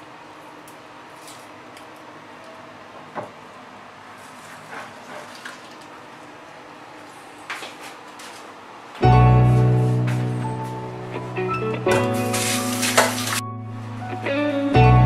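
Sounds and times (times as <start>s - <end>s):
background music: 9.0s - 15.0s.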